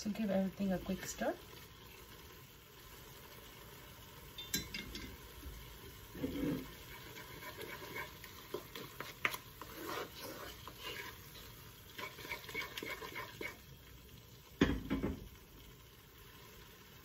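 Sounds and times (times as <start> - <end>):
wooden spatula scraping a wok: 6.0 - 13.6.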